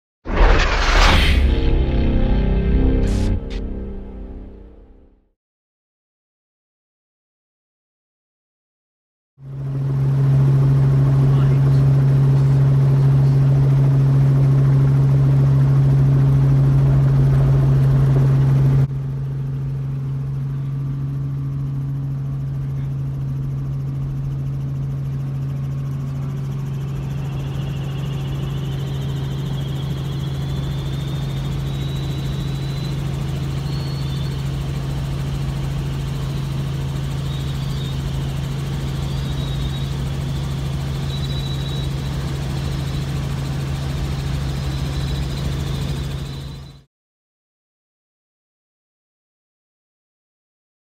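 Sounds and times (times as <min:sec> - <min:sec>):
faint high wavering whine: 0:00.4 - 0:05.0, 0:15.8 - 0:46.7
helicopter engine and rotors: 0:01.6 - 0:04.9, 0:09.4 - 0:46.9.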